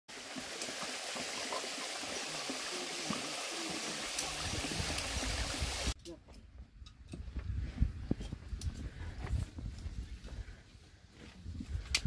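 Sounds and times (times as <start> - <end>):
stream rushing over rock: 0.1 - 6.0.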